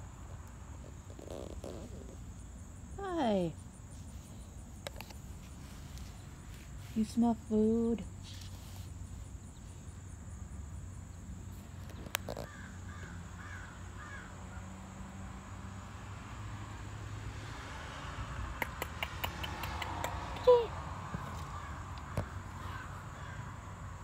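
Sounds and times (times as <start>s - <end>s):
crow cawing: 12.3s - 14.6s, 21.6s - 23.6s.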